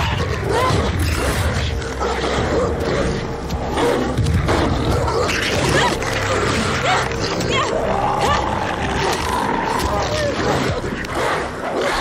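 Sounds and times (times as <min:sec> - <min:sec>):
wolves growling: 0:00.0 - 0:12.0.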